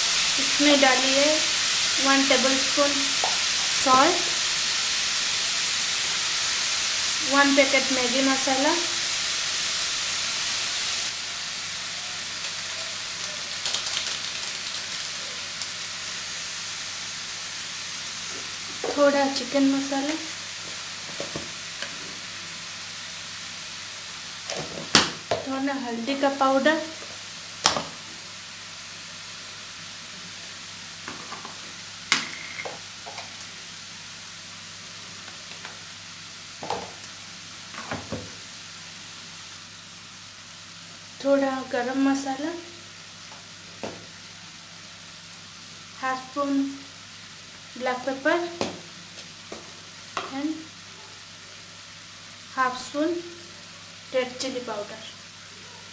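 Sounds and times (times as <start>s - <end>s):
vegetables sizzling in hot oil: 0.0s - 55.9s
oil crackles: 12.2s - 16.5s
kitchen utensils clinking: 31.1s - 33.6s.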